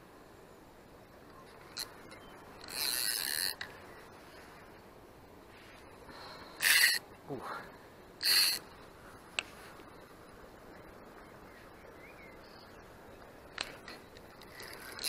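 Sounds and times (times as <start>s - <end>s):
fishing reel clutch ratcheting: 2.6s - 3.7s, 6.6s - 7.0s, 8.2s - 8.6s.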